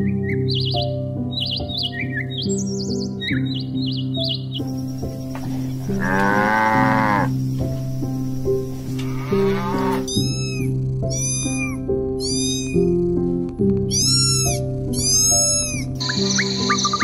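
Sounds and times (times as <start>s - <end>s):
soft background music: 0.0s - 17.0s
cow mooing: 5.5s - 7.4s, 9.0s - 10.1s
cat meowing: 10.0s - 13.0s, 13.9s - 16.0s.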